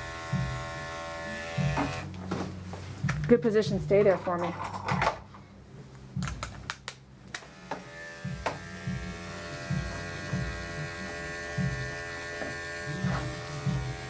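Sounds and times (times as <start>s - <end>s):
electric clippers buzzing: 0.0s - 2.1s, 7.4s - 14.0s.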